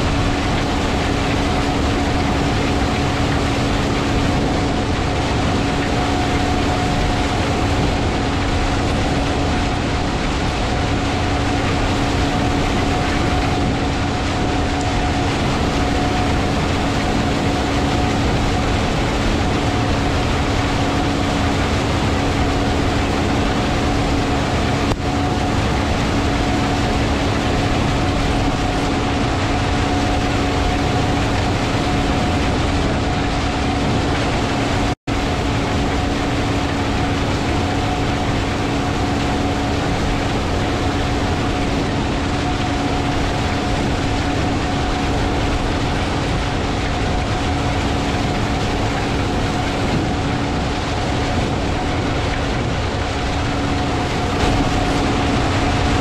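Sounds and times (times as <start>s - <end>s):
heavy farm machinery drone: 0.0s - 56.0s.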